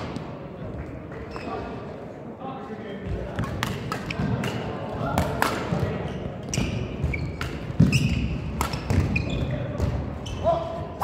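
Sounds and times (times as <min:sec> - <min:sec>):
shoes squeaking on court: 0:01.3 - 0:01.8, 0:05.8 - 0:10.6
racket hitting shuttlecock: 0:03.4 - 0:09.3.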